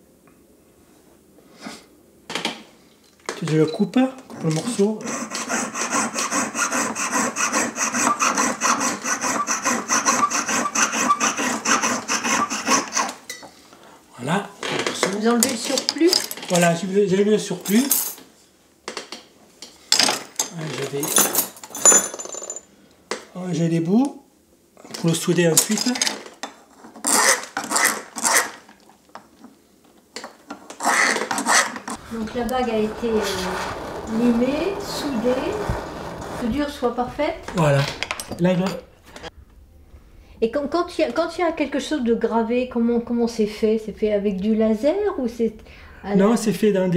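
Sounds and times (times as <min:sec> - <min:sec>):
hand file on metal: 0:04.6 - 0:13.2, 0:30.8 - 0:36.7
saw rasping through metal: 0:04.7 - 0:13.2, 0:30.8 - 0:36.8.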